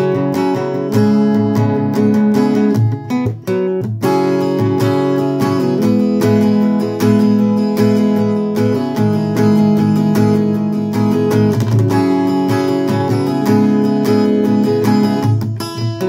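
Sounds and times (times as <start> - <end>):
acoustic guitar strumming: 0.0 - 16.0.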